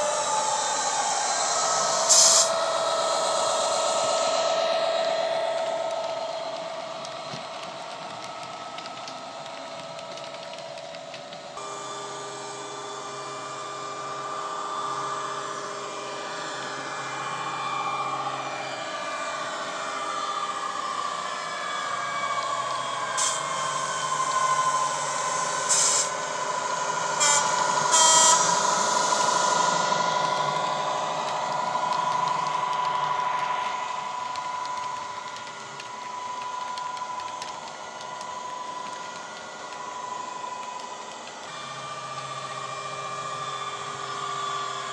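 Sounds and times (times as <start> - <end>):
air hiss: 0.0 - 7.8, 23.1 - 41.6.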